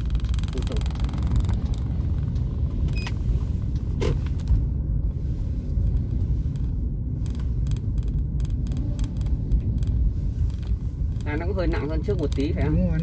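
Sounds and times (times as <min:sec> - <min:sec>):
car cabin rumble: 0:00.0 - 0:13.0.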